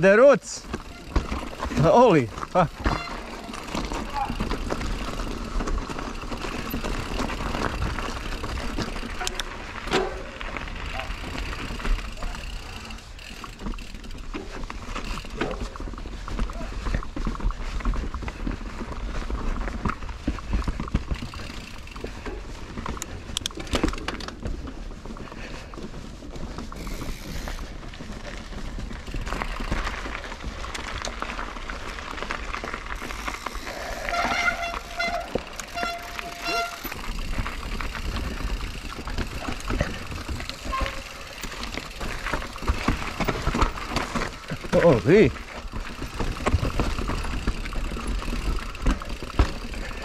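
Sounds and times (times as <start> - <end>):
mountain bike rattling and knocking: 0.0 - 50.0.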